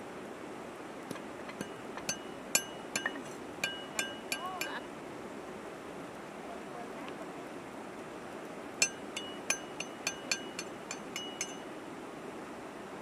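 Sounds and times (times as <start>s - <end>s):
pestle clinking in mortar: 1.1s - 4.8s, 8.8s - 11.7s.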